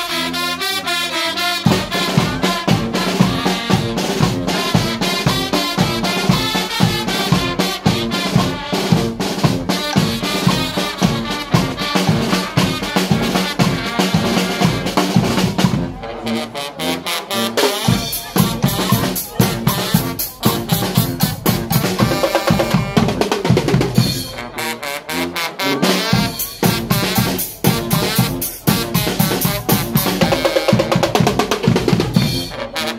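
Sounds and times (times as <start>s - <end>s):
trumpets and trombones: 0.0s - 32.9s
drums and cymbal: 1.6s - 16.0s, 17.5s - 24.5s, 25.8s - 32.9s.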